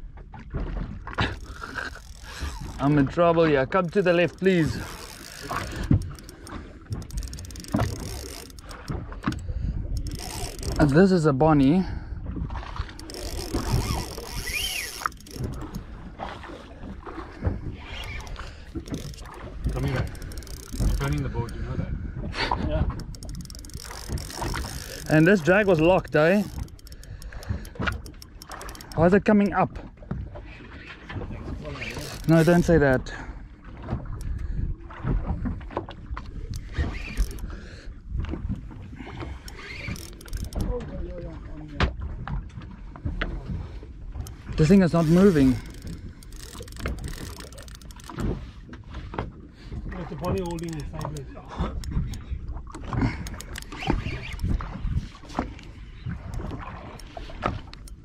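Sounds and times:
water noise: 0.0s - 58.0s
wind: 0.0s - 58.0s
sharp clicks and knocks: 3.7s - 11.0s, 12.9s - 15.9s, 18.0s - 21.6s, 22.9s - 29.6s, 31.9s - 33.0s, 36.5s - 37.5s, 39.4s - 40.8s, 44.2s - 48.4s, 50.3s - 54.7s, 56.3s - 58.0s.

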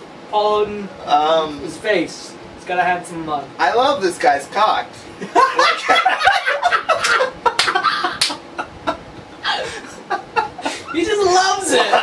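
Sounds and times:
men laughing hard: 5.2s - 11.0s, 11.7s - 12.0s.

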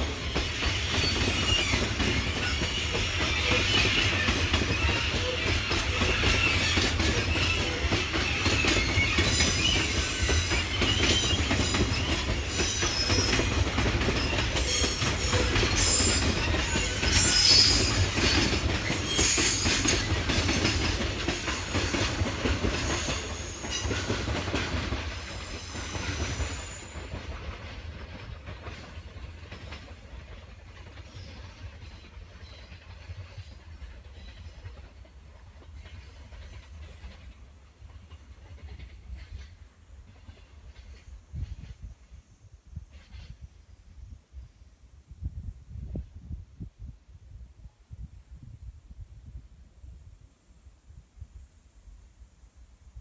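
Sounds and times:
train wheels rumbling and clattering: 0.0s - 43.6s
high-pitched wheel squeal: 0.9s - 13.5s, 14.2s - 19.9s.

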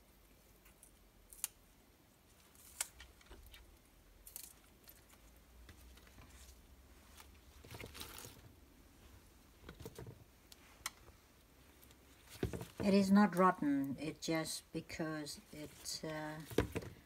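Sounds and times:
plant stems snapping: 1.3s - 1.6s, 2.5s - 3.6s.

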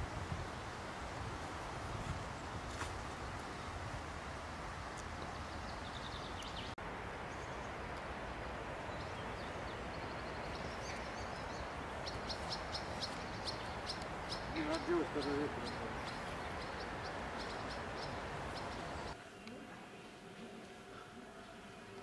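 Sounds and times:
outdoor background noise: 0.0s - 22.0s
small birds chirping: 4.5s - 22.0s.

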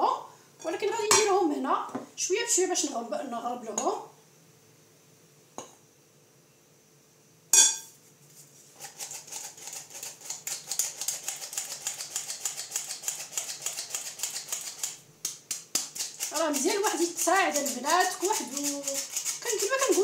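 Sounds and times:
flour sifter clicking: 8.8s - 20.0s.

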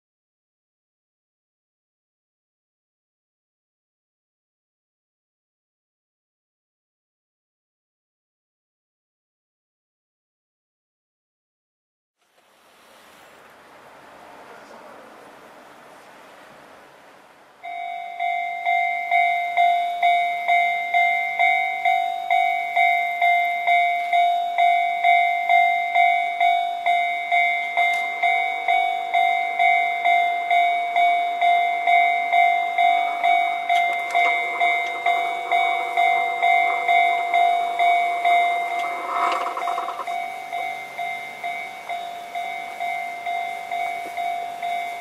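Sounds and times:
level crossing warning bell: 17.6s - 45.0s.

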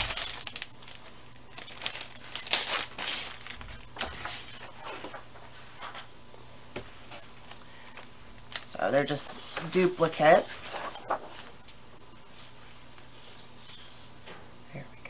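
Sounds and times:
cellophane crinkling: 0.0s - 5.3s.

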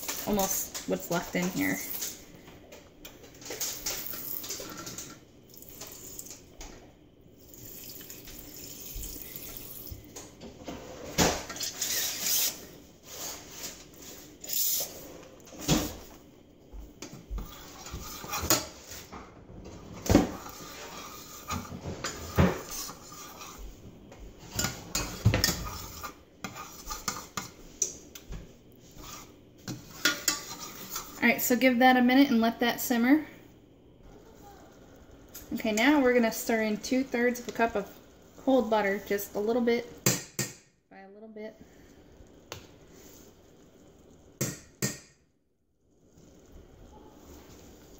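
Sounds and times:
spoon scraping metal saucepan: 11.4s - 13.5s, 14.4s - 15.0s, 17.4s - 18.8s, 20.3s - 23.6s, 24.4s - 28.0s, 28.8s - 31.2s.

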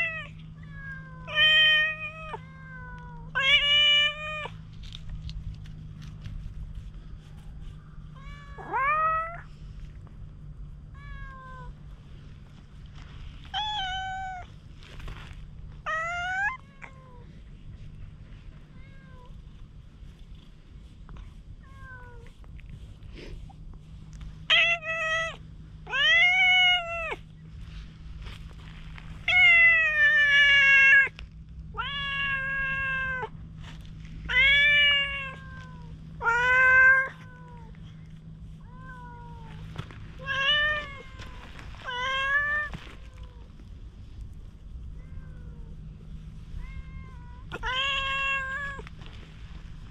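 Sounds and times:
cat meowing: 8.2s - 9.4s, 15.8s - 17.2s, 31.8s - 33.3s, 34.3s - 37.8s, 38.6s - 43.5s, 46.6s - 48.9s.

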